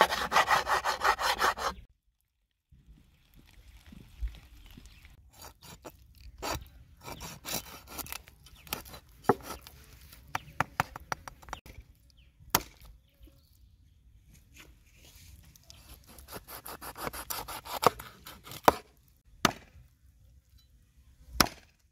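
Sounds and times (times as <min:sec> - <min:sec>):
knife cutting raw chicken: 0:15.7 - 0:18.8.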